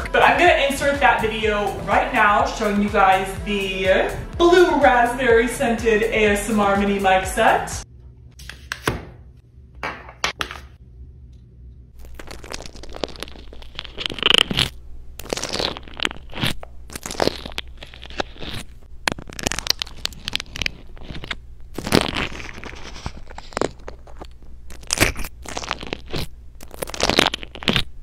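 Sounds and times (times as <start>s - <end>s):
crunchy slime squeezed by hand: 12.0s - 28.0s.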